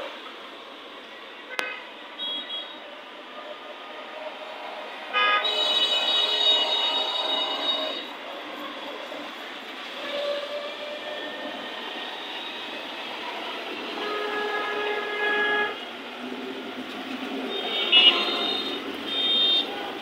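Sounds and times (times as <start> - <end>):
street noise: 0.0 - 20.0
horn blasts: 5.1 - 8.1, 17.5 - 19.8.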